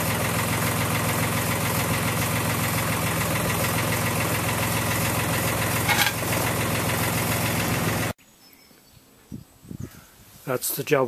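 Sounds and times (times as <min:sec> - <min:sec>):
diesel engine running: 0:00.0 - 0:08.2.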